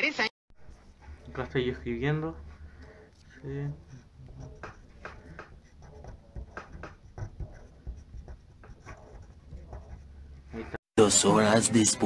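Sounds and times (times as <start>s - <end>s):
pen scratching on paper: 0.6s - 10.6s.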